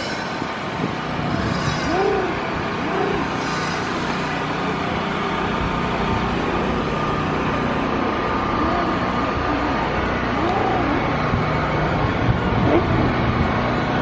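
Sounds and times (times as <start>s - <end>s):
city traffic hum: 0.0s - 14.0s
rising and falling calls: 1.4s - 4.4s.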